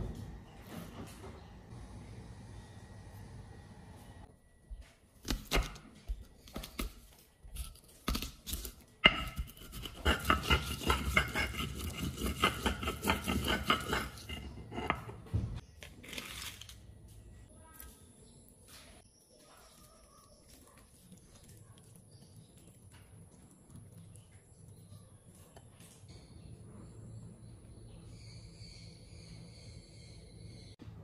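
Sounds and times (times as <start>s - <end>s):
stone pestle grinding: 8.5s - 15.3s
pestle knocking on stone mortar: 9.0s - 15.2s.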